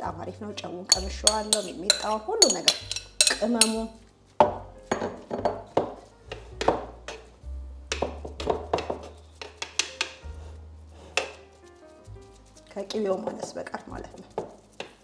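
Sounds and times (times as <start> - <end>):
cutlery clinking in earthenware bowl: 0.9 - 4.0.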